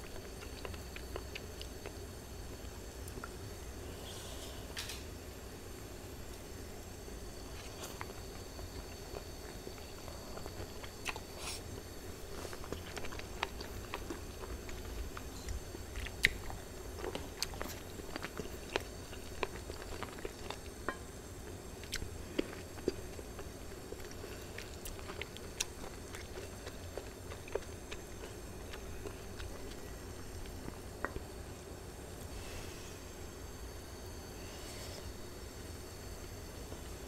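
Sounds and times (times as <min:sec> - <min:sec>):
chewing and eating: 0:00.0 - 0:03.4, 0:06.3 - 0:31.5
steady low hum: 0:00.0 - 0:37.0.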